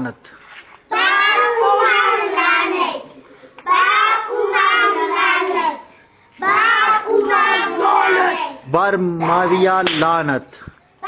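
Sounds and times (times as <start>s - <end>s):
children chanting in unison: 0.9s - 9.7s.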